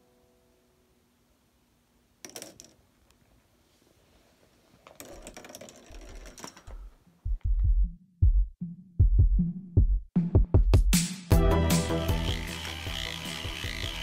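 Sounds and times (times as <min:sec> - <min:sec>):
plastic ball clattering on track: 0:02.2 - 0:02.8, 0:04.8 - 0:07.0
dull low thumps: 0:07.2 - 0:11.0.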